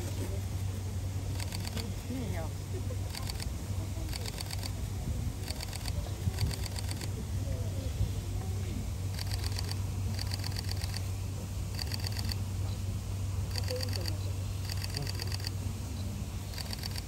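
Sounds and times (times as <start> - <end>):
steady low hum: 0.0 - 17.0
rapid clicking bursts: 1.3 - 1.9, 3.1 - 3.5, 4.1 - 4.8, 5.4 - 7.1, 9.1 - 11.1, 11.7 - 12.4, 13.5 - 15.6, 16.5 - 17.0.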